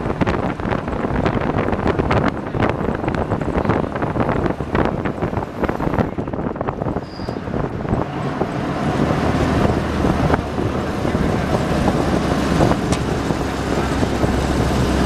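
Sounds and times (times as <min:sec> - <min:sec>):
truck engine running: 0:00.0 - 0:15.0
wind buffeting microphone: 0:00.0 - 0:15.0.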